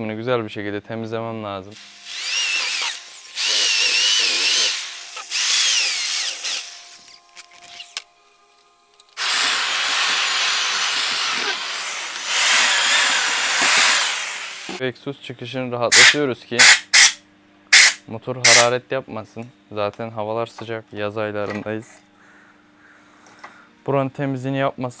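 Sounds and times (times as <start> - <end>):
electric rotary tool grinding metal: 1.8 - 8.0, 9.2 - 14.8.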